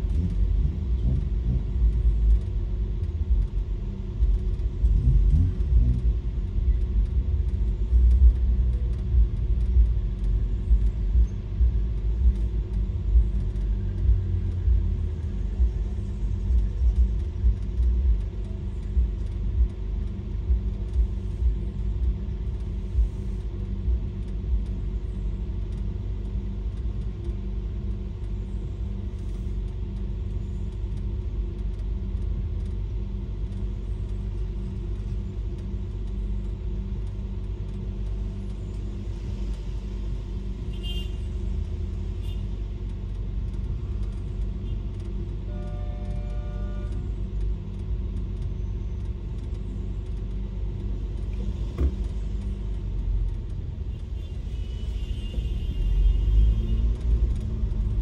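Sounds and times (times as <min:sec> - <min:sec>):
car engine: 0:00.0 - 0:58.0
road rumble inside car: 0:00.0 - 0:58.0.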